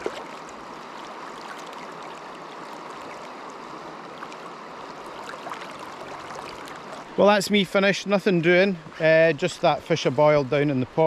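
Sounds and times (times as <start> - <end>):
river water rippling: 0.0 - 11.0.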